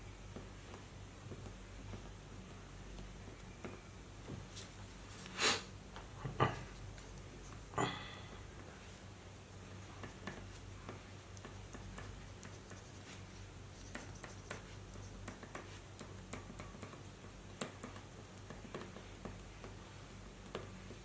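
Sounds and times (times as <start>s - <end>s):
low electrical hum: 0.0s - 21.0s
crayon scratching on paper: 11.4s - 15.9s.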